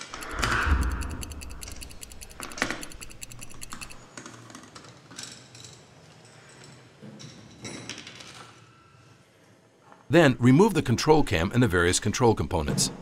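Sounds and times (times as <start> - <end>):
socket ratchet clicking: 0.0 - 4.1.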